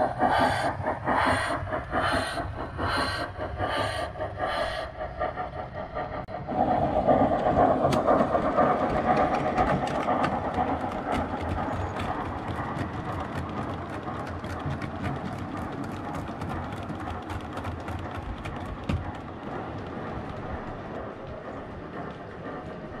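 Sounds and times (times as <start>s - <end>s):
model train rumbling: 0.0s - 23.0s
wheels clicking over rail joints: 7.1s - 23.0s.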